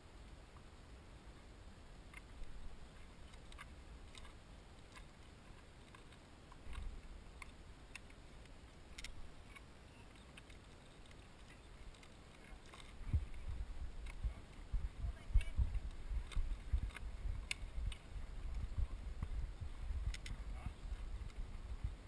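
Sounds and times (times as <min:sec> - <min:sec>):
light clicks and ticks: 0:02.0 - 0:22.0
wind rumble on microphone: 0:11.6 - 0:22.0.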